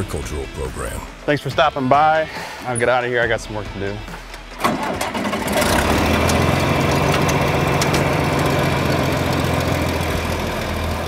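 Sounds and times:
diesel engine idling: 0:04.5 - 0:11.0.

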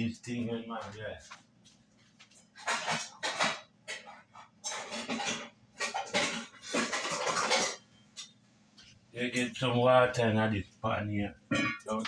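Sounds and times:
metal pots and pans clattering: 0:02.5 - 0:08.4, 0:11.5 - 0:12.0.

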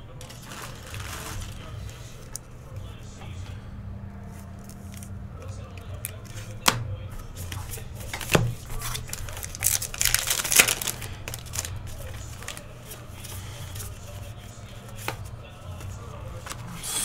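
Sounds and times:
card pack wrapper crinkling: 0:00.2 - 0:02.4, 0:04.3 - 0:16.7
cards being handled and slid: 0:04.2 - 0:17.0.

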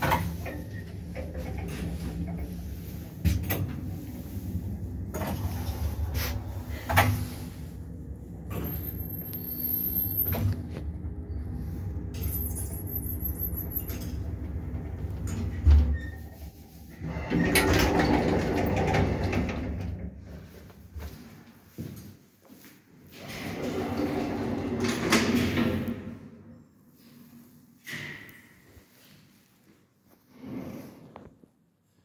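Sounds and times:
lift doors rattling open: 0:00.0 - 0:07.5, 0:08.3 - 0:16.4, 0:17.0 - 0:20.2
lift car humming: 0:00.1 - 0:20.0.

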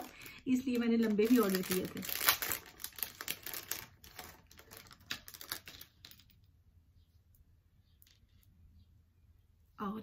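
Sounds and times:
plastic bag crinkling: 0:00.0 - 0:06.4.

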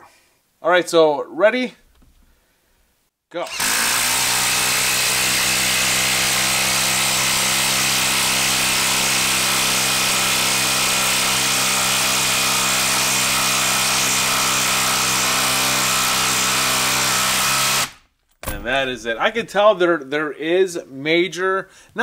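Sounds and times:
impact driver hammering: 0:03.5 - 0:18.8.

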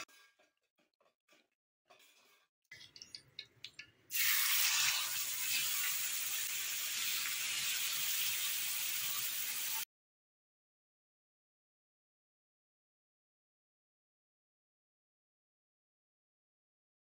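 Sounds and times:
fish frying sizzle: 0:04.1 - 0:09.9.

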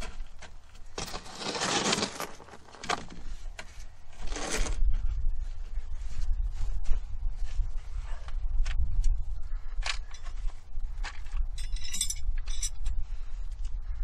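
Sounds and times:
scraping and rustling: 0:00.0 - 0:04.9.

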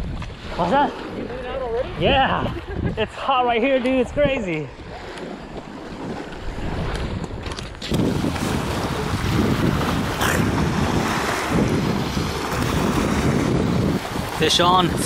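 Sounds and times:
wind buffeting microphone: 0:00.0 - 0:15.0
small waves washing on rocks: 0:03.7 - 0:15.0.

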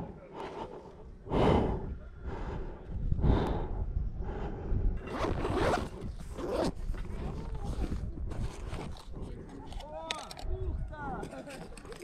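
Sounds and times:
person breathing heavily: 0:00.0 - 0:05.0
wind rumble on microphone: 0:01.3 - 0:09.8, 0:10.4 - 0:11.3.

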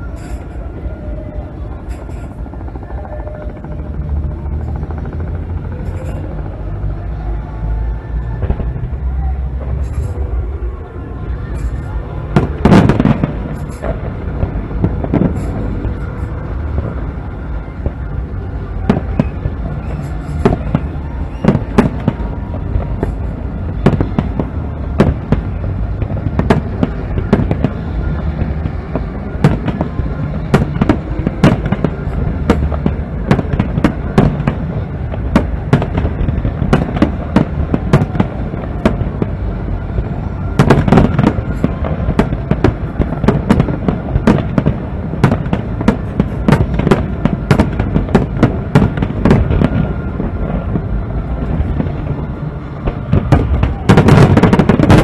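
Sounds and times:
fireworks bangs and crackles: 0:00.0 - 0:55.0.

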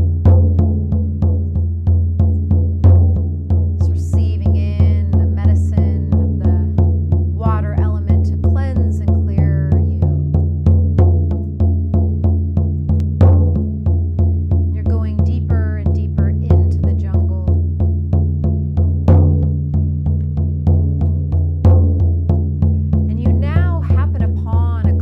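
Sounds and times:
frame drum booming beats: 0:00.0 - 0:25.0.

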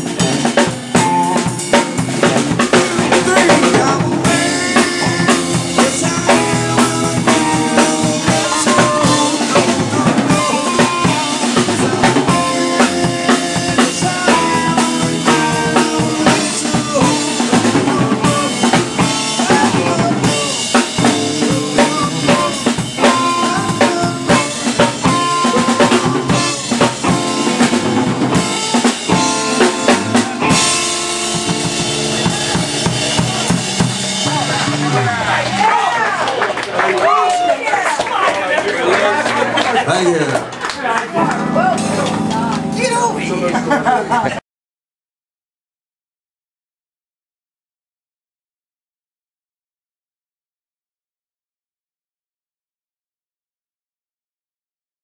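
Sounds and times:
bass drum: 0:00.0 - 0:35.7
electric guitar: 0:00.0 - 0:37.5, 0:39.9 - 0:44.4
live rock band playing: 0:00.0 - 0:44.4.

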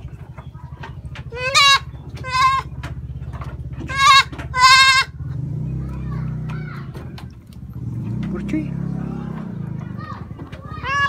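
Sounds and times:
young goat bleating: 0:01.3 - 0:02.7, 0:03.9 - 0:05.2, 0:10.8 - 0:11.0.

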